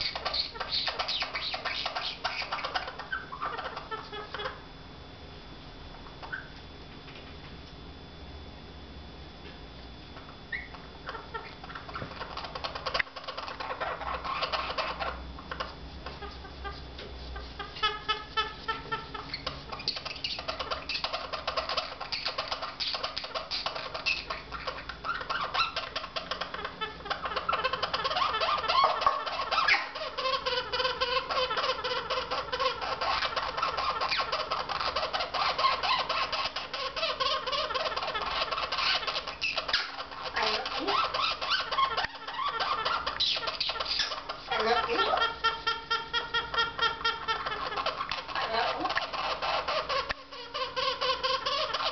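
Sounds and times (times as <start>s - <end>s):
parrot clicking chatter and squeaks: 0.0s - 4.6s, 10.5s - 51.9s.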